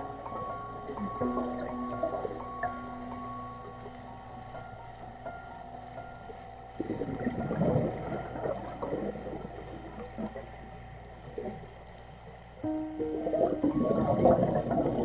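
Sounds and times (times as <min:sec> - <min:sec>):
bubbles gurgling underwater: 0:06.8 - 0:10.6, 0:13.0 - 0:15.0.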